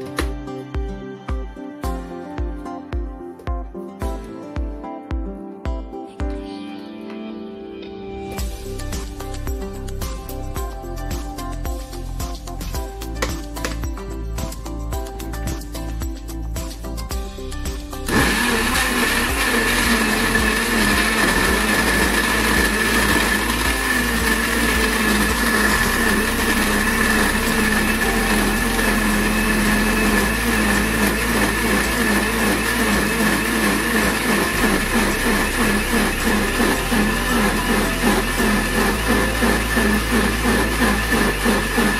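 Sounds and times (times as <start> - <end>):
blender running: 18.1 - 41.9.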